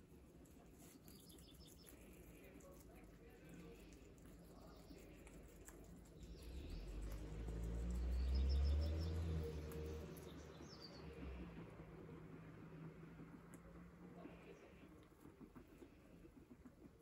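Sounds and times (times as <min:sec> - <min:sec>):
low rumble: 0:03.4 - 0:15.4.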